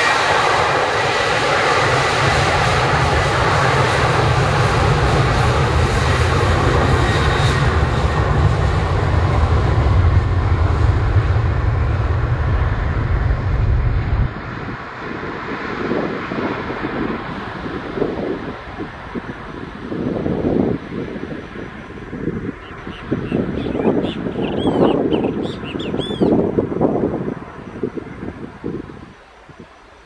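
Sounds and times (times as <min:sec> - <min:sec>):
heavy low rumble: 0:00.0 - 0:29.0
jet engines at takeoff: 0:00.0 - 0:30.0.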